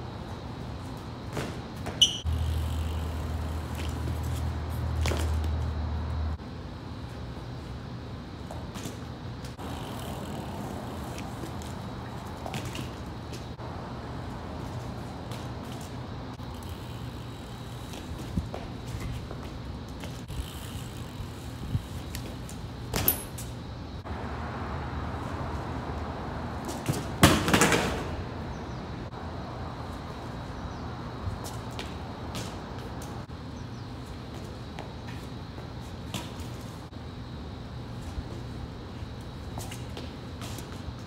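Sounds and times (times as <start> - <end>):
bike tyres rolling and scrubbing: 0.0 - 41.0
bike clattering: 1.2 - 5.6, 14.6 - 23.6, 26.7 - 28.7.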